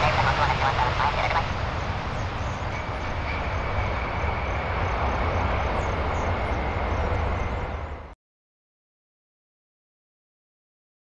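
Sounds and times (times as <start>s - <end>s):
faint high whine: 0.0s - 8.2s
jet engine and runway rumble: 0.0s - 8.2s.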